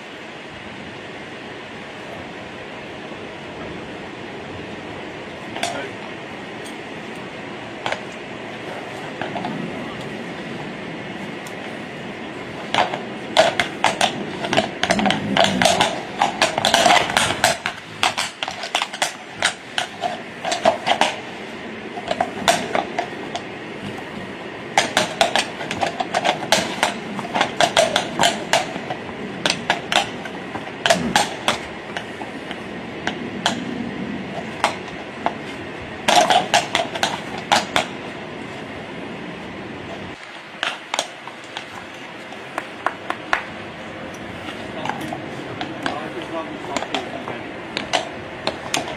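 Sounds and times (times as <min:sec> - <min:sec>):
horse hooves on cobblestones: 0:07.8 - 0:10.6, 0:11.2 - 0:38.0, 0:39.9 - 0:48.9.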